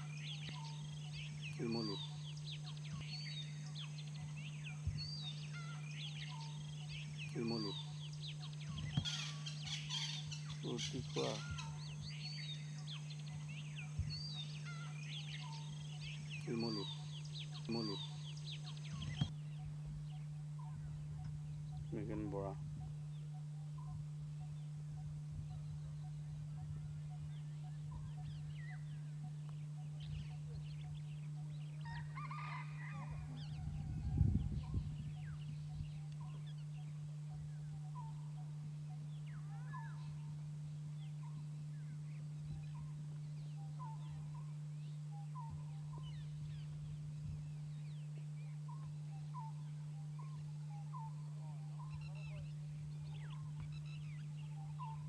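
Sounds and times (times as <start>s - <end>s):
short hooked bird calls: 0.0s - 19.7s
bird repeating low note: 0.0s - 55.0s
steady low hum: 0.0s - 55.0s.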